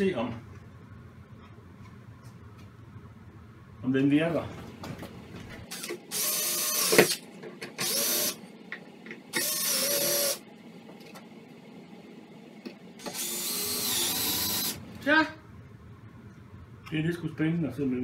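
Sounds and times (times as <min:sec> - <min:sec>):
cordless drill bursts: 0:05.7 - 0:07.2, 0:07.8 - 0:08.4, 0:09.3 - 0:10.4, 0:13.0 - 0:14.8.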